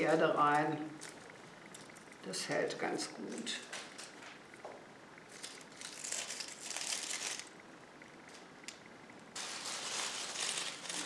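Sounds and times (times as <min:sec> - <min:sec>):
hands crinkling dry material: 0:09.4 - 0:11.0.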